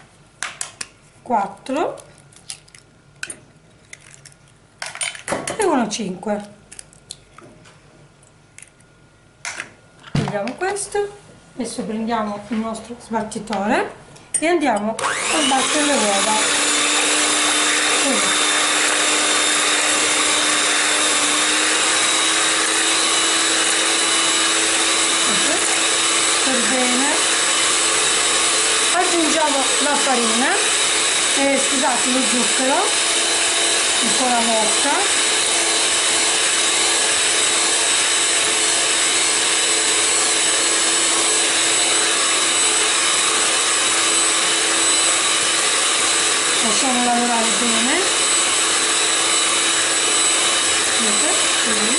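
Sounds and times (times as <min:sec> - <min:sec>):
electric hand mixer whisking eggs: 0:15.0 - 0:51.9.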